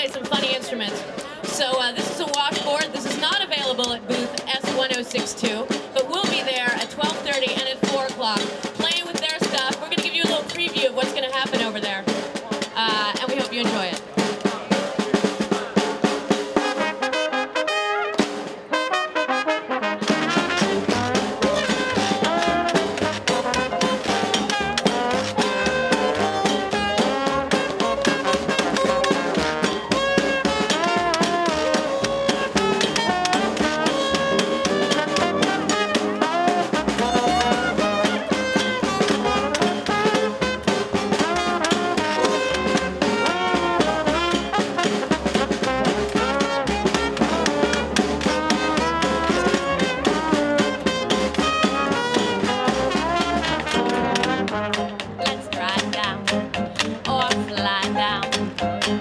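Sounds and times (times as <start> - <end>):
drum struck with wooden spoons: 1.5 - 16.9, 20.1 - 59.0
trumpet: 14.3 - 59.0
trombone: 14.6 - 59.0
upright bass: 19.9 - 59.0.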